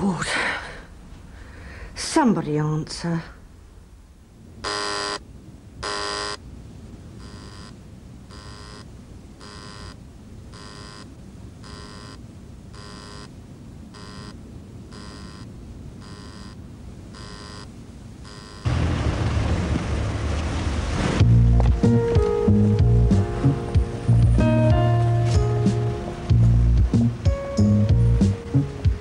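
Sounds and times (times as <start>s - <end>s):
intercom buzzer: 4.6s - 5.2s, 5.8s - 6.4s, 7.2s - 10.0s, 10.6s - 12.2s, 12.8s - 13.3s, 14.0s - 16.6s, 17.2s - 18.7s.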